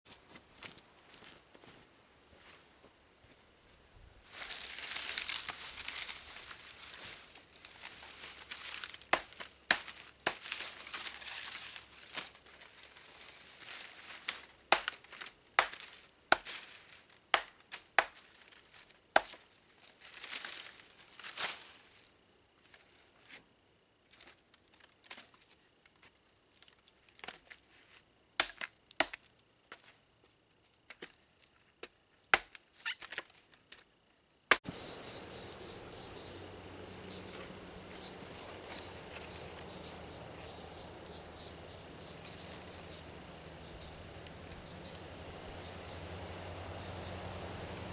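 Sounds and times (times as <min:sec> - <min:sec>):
dry palm fronds crackling: 0:04.2 - 0:23.4, 0:24.1 - 0:30.0, 0:34.5 - 0:47.9.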